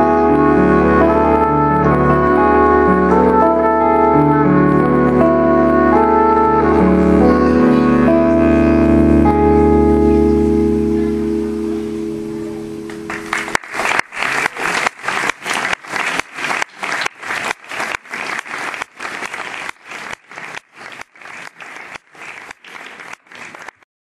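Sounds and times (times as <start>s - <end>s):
trumpet guitar and bass chord: 0.0s - 13.6s
audience applause: 12.9s - 23.8s.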